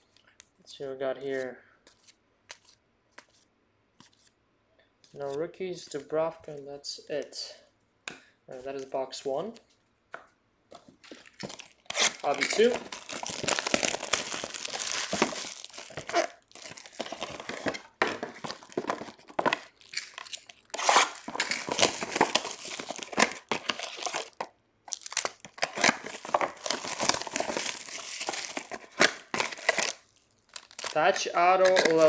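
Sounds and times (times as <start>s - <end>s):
plastic wrappers crinkling and tearing: 10.8s - 32.0s.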